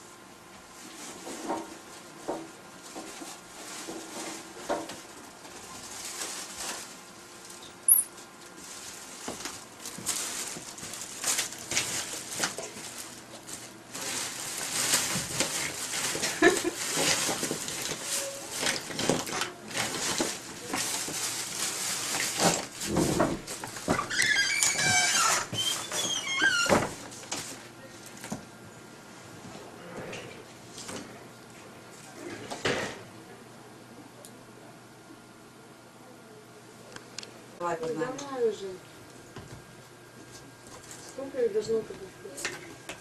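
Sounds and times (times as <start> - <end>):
plastic bag rustling: 0.8 - 28.4, 40.3 - 42.8.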